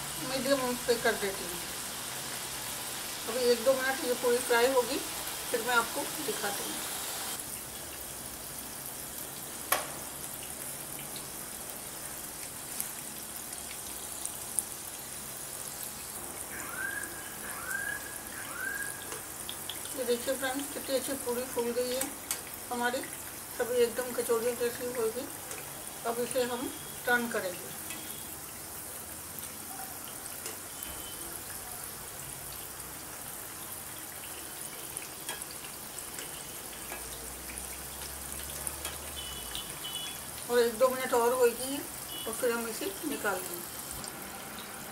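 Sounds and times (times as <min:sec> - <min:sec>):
deep-frying oil sizzling: 0:00.0 - 0:44.9.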